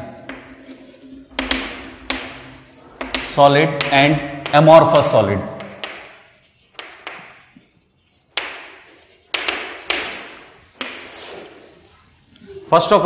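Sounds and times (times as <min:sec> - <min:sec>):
chalk tapping on blackboard: 0:00.2 - 0:04.7, 0:05.6 - 0:12.4.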